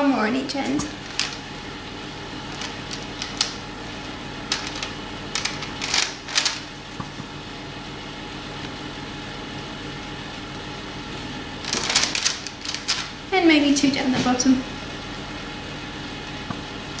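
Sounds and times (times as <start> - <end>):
low background hum: 0.0 - 17.0
piping bag crinkling and squelching: 0.7 - 7.2, 11.6 - 13.3.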